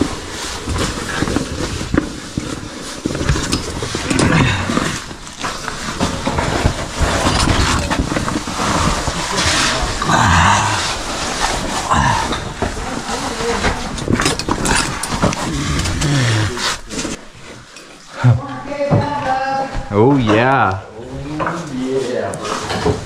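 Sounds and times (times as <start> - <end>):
strained breaths or grunts: 3.5 - 6.2, 7.0 - 18.5.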